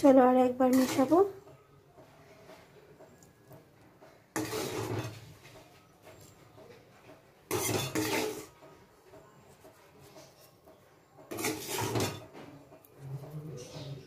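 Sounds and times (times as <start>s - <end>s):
metal ladle scraping a pot: 0.5s - 1.4s, 4.3s - 6.5s, 7.4s - 8.6s, 11.3s - 13.8s.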